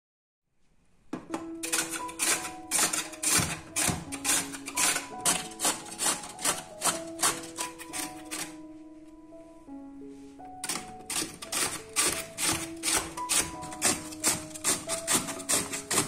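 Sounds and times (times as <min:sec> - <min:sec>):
soft music with held notes: 0:01.1 - 0:16.0
potato scraping on metal grater: 0:01.6 - 0:08.6, 0:10.6 - 0:16.0.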